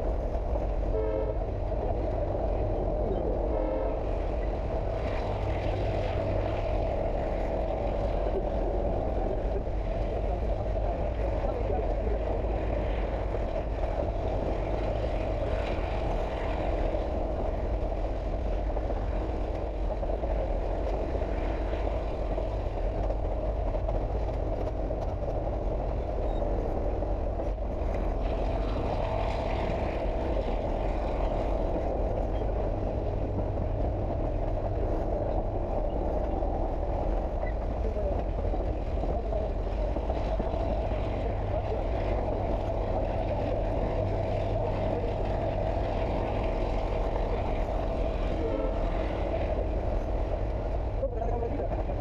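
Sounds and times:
train rumbling along track: 0.0s - 52.0s.

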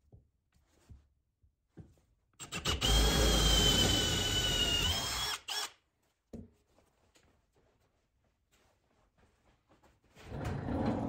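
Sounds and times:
power drill boring into wood: 2.4s - 5.8s.

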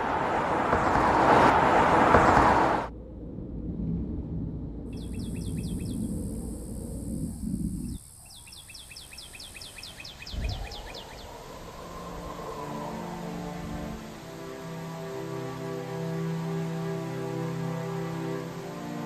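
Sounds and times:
low rumbling noise: 0.0s - 8.2s
bird chirping: 4.9s - 6.5s, 7.3s - 11.7s.

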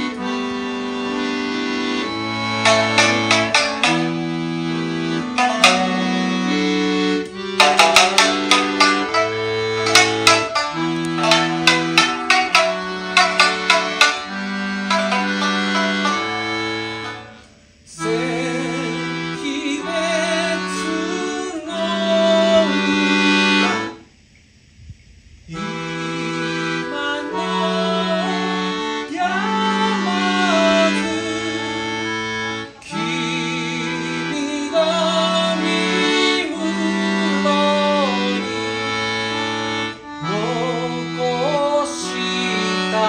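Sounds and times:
piano accordion playing chords: 0.0s - 24.0s, 25.5s - 43.0s
bowed string instrument melody: 2.2s - 17.5s.

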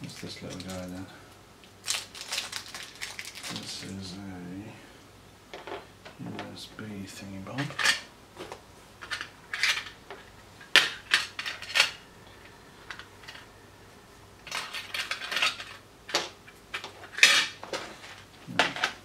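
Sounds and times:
small parts clicking and clattering: 1.6s - 3.6s, 9.0s - 13.5s, 14.4s - 19.0s.

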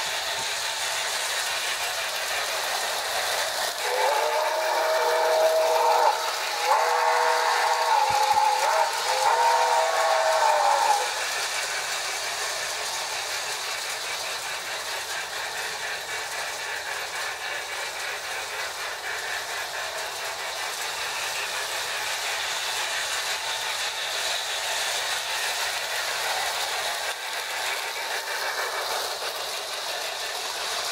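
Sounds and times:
toy steam locomotive chuffing: 0.0s - 30.9s
toy train wheels rattling on rails: 0.0s - 30.9s.

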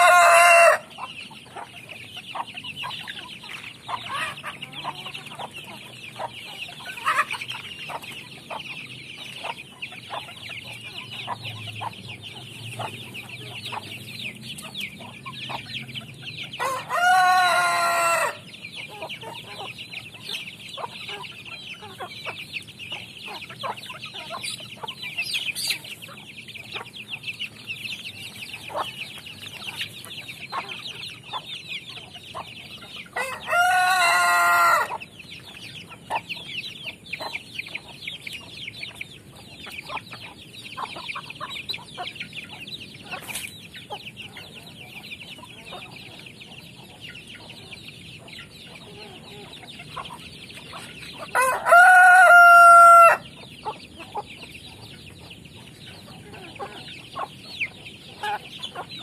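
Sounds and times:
rooster crowing: 0.0s - 0.9s, 16.6s - 18.4s, 33.2s - 35.0s, 51.3s - 53.2s
chickens clucking and cheeping: 0.0s - 59.0s.

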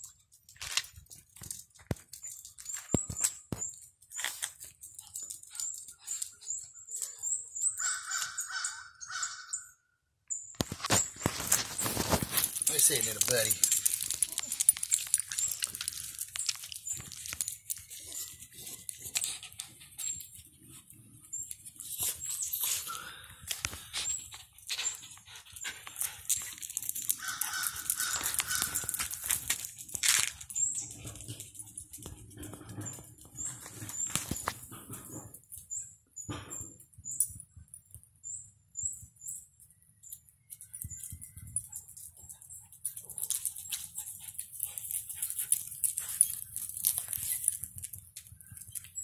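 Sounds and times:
collar tags clicking: 0.0s - 8.7s, 10.6s - 49.0s
dogs rustling on leaves: 10.8s - 19.4s, 25.9s - 30.7s.

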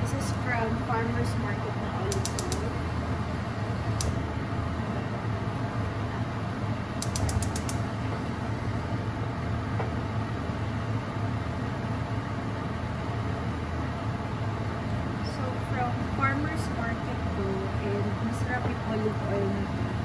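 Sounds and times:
steady low hum: 0.0s - 20.0s
stove igniter clicking: 2.1s - 2.8s, 3.9s - 4.2s, 7.0s - 7.9s.

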